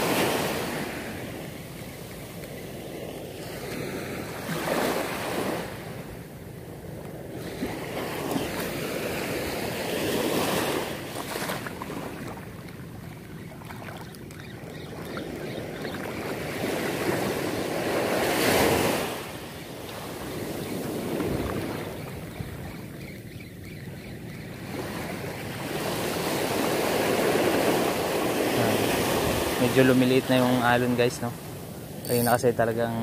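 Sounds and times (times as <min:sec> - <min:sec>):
surf breaking on a beach: 0:00.0 - 0:06.2, 0:15.2 - 0:22.3, 0:24.7 - 0:33.0.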